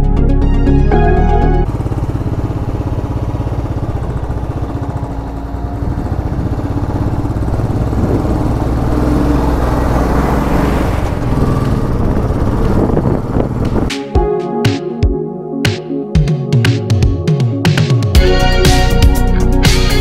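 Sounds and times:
motorcycle engine running: 1.0 - 14.3
wind and road noise: 1.6 - 14.1.

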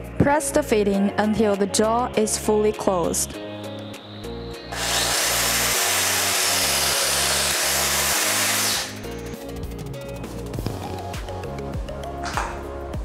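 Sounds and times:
background music: 0.0 - 13.0
press tool motor running: 3.8 - 9.3.

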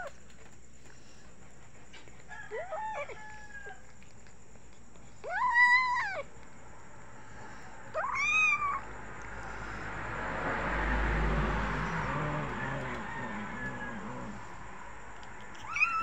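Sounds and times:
cat meowing: 5.2 - 6.3, 7.9 - 8.9, 15.5 - 16.0.

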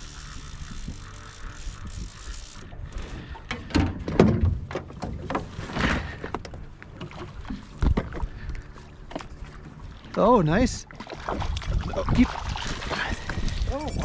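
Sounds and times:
steady whirring: 0.0 - 3.2.

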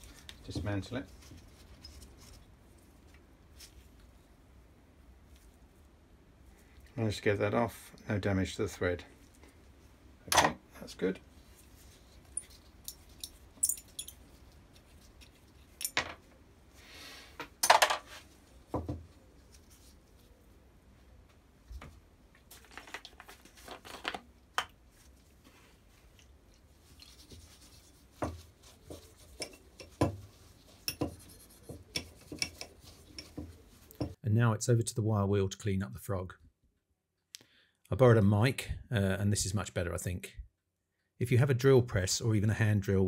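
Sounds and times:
rubbing and handling noises: 0.0 - 7.2, 10.8 - 34.2
metal parts clinking and knocking: 12.3 - 14.2, 15.7 - 16.2.

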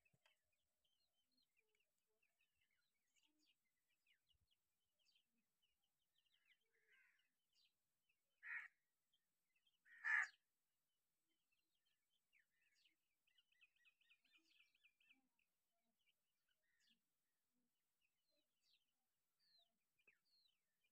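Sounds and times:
harsh bird calls: 9.8 - 10.4.

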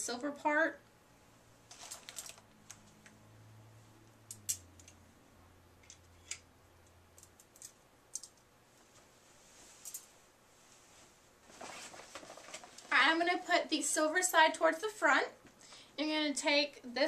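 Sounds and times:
plastic rustle: 1.7 - 2.8, 9.5 - 13.0.

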